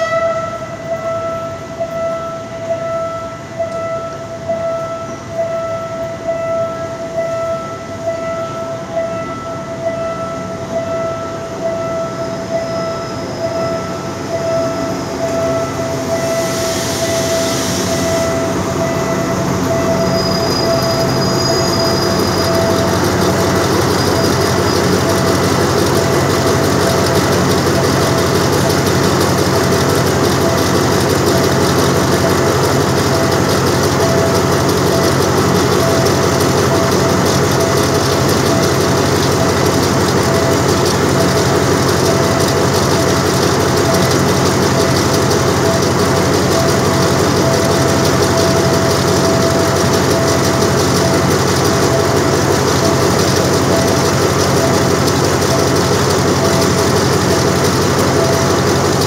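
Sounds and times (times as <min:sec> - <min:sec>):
locomotive engine idling: 0:18.0 - 0:59.0.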